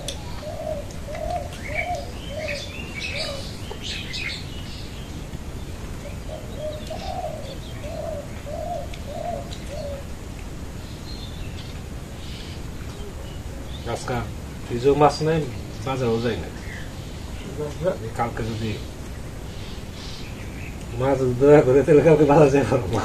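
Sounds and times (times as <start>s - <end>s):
dove cooing: 0.0s - 10.6s, 12.0s - 14.2s
small birds chirping: 0.0s - 23.0s.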